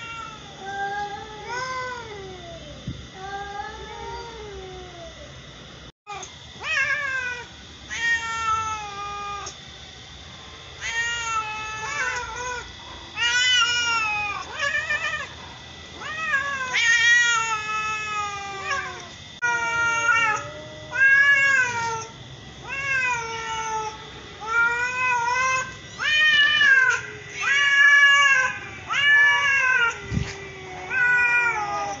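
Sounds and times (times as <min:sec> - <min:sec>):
cats meowing: 0:00.0 - 0:02.6, 0:06.6 - 0:09.6, 0:10.8 - 0:12.6, 0:13.2 - 0:15.3, 0:16.0 - 0:32.0.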